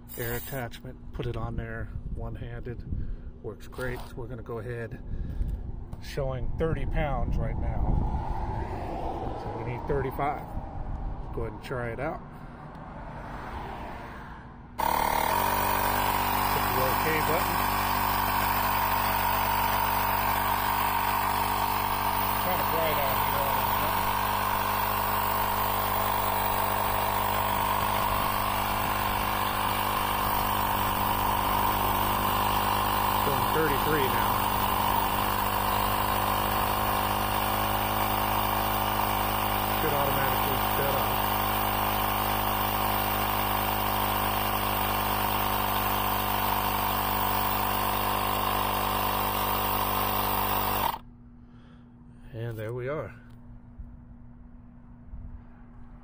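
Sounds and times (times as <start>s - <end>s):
air compressor running: 0.0s - 0.7s, 14.8s - 51.8s.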